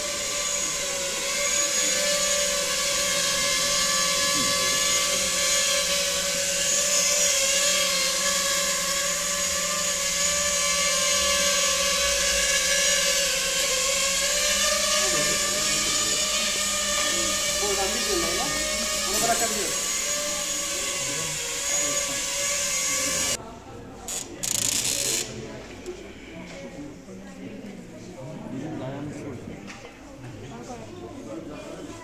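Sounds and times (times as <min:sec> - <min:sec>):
drone propellers buzzing: 0:00.0 - 0:23.4.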